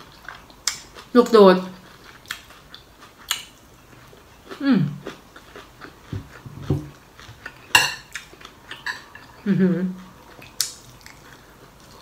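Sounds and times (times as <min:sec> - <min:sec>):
chewing with crunching clicks: 0:00.0 - 0:01.1, 0:01.8 - 0:06.4, 0:10.0 - 0:12.0.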